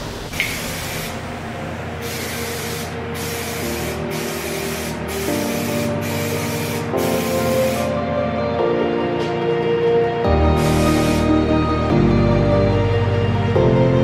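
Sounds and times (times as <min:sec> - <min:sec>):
background music: 0:00.0 - 0:14.0
spray can hissing: 0:00.3 - 0:01.2, 0:02.0 - 0:08.0, 0:10.6 - 0:11.4.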